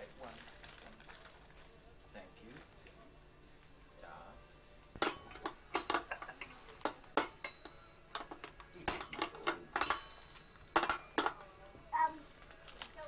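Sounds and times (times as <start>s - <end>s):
high metallic xylophone ring: 5.0s - 11.7s.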